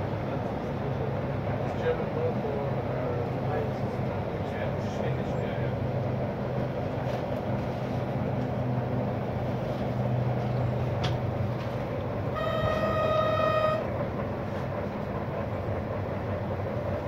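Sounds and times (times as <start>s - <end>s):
diesel railcar engine humming: 0.0s - 17.0s
train horn: 12.3s - 14.0s.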